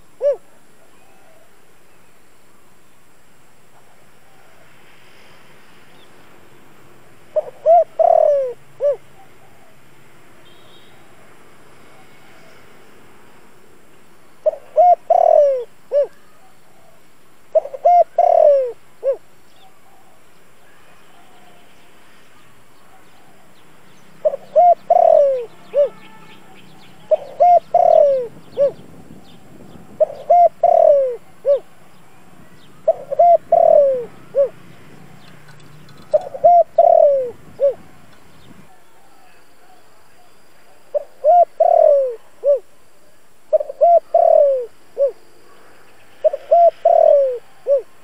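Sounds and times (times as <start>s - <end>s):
dove cooing: 0.0s - 1.5s, 7.3s - 9.8s, 14.4s - 21.6s, 22.8s - 42.7s, 43.5s - 48.0s.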